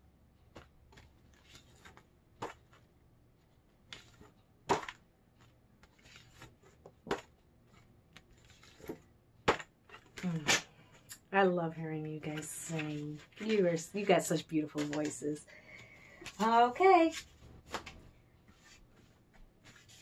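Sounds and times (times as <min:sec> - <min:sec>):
cards rustling: 0:00.4 - 0:11.1, 0:12.1 - 0:20.0
plastic-sleeved cards flapping: 0:00.6 - 0:02.9, 0:03.8 - 0:11.1, 0:15.8 - 0:20.0.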